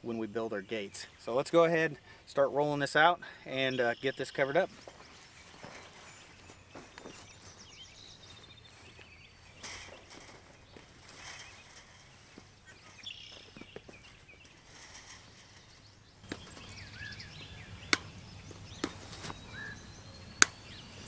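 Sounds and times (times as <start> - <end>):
wire fence rustling on grass: 4.1 - 19.9.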